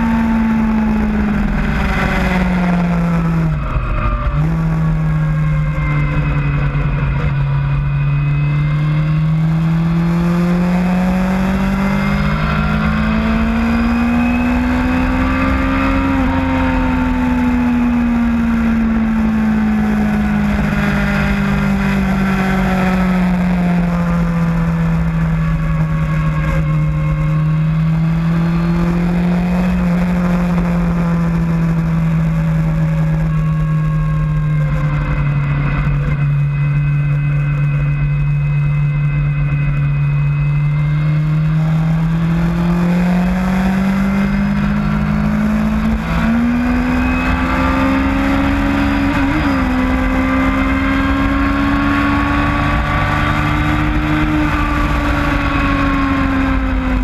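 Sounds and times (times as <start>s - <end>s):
motorcycle engine accelerating: 0.0s - 57.0s
rushing wind: 0.0s - 57.0s.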